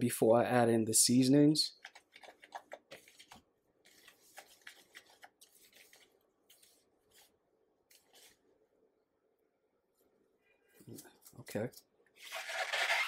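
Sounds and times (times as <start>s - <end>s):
hand stirring dry flour mix: 1.8s - 8.4s.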